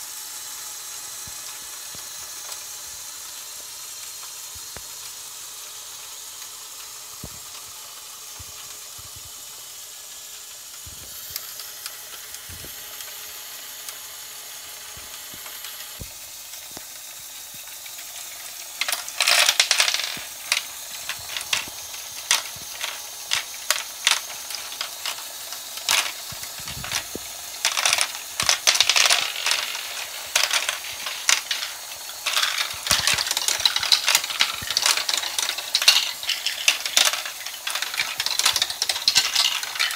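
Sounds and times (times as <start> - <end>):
mechanism whirring: 0.0 - 39.9
plastic balls clattering: 17.6 - 39.9.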